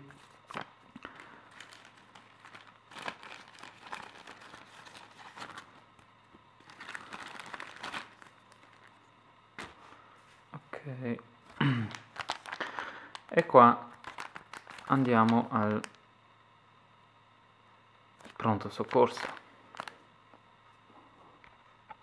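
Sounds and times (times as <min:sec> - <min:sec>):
paper rustling and crinkling: 0:00.2 - 0:05.8, 0:06.6 - 0:09.0, 0:11.5 - 0:13.2, 0:14.0 - 0:15.9, 0:18.2 - 0:20.0.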